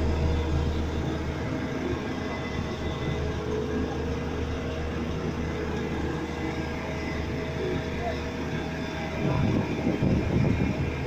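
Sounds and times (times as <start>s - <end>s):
heavy diesel engines running: 0.0s - 11.0s.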